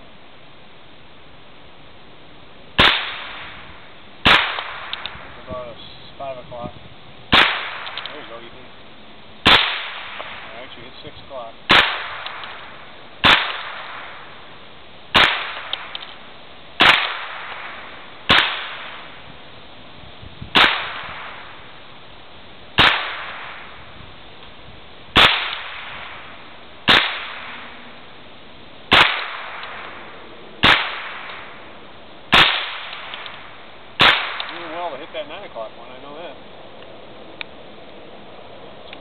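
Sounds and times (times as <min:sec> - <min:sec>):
rifle shots echoing: 0:02.8 - 0:05.8, 0:07.3 - 0:08.6, 0:09.4 - 0:14.5, 0:15.1 - 0:19.2, 0:20.5 - 0:21.7, 0:22.8 - 0:23.9, 0:25.1 - 0:28.1, 0:28.9 - 0:35.6.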